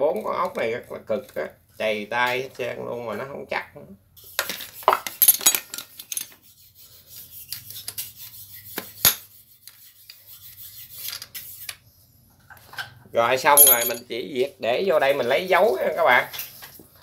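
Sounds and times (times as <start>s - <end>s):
metal tool clicking and scraping: 13.6s - 14.0s.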